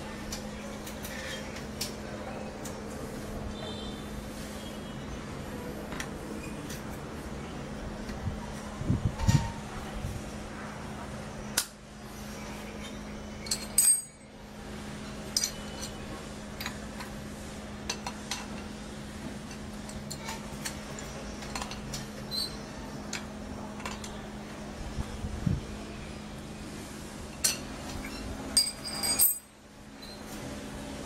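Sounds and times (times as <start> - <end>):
small steel parts clinking: 13.4 - 14.3, 15.3 - 17.1, 27.3 - 30.2.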